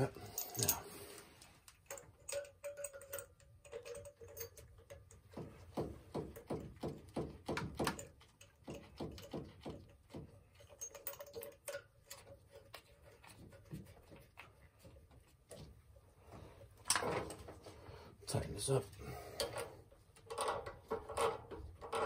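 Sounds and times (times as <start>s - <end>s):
light clicks of metal fittings: 0.0s - 6.6s.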